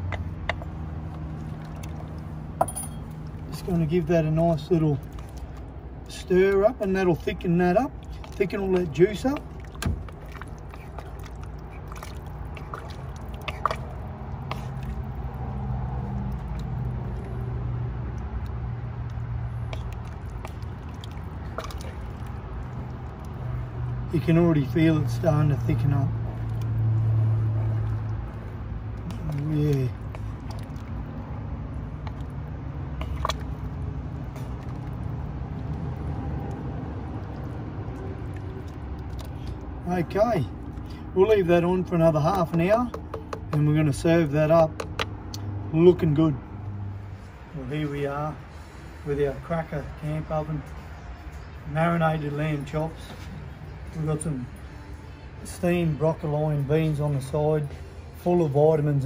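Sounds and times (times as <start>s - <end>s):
stew sloshing and squelching: 0.0s - 51.6s
spoon knocking against pot: 42.9s - 43.6s.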